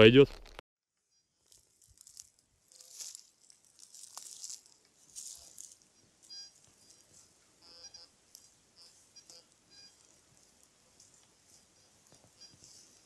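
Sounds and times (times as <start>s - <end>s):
soft high rustling: 1.5s - 7.6s
faint high chirps: 5.5s - 10.1s, 11.4s - 12.8s.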